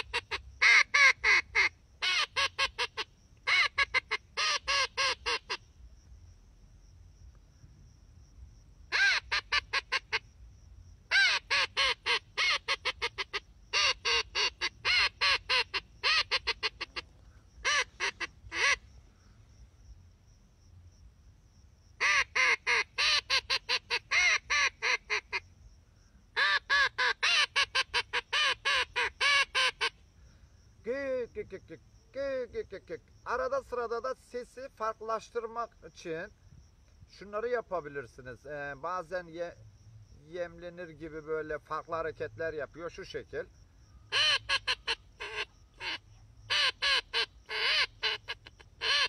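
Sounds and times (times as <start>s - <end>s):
duck call notes: 11.1s - 17.0s, 17.6s - 18.8s, 26.4s - 30.0s, 44.1s - 49.0s.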